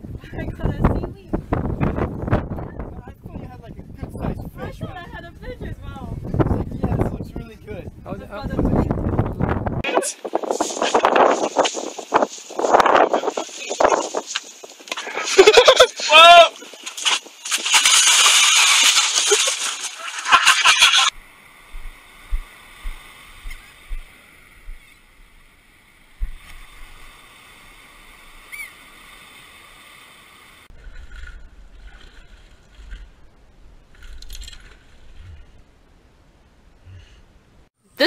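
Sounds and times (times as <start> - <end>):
water sloshing: 16.5 - 21.2, 30.7 - 35.7
loud splash into water: 17.0 - 20.8
low thuds: 21.2 - 24.9, 26.2 - 26.6.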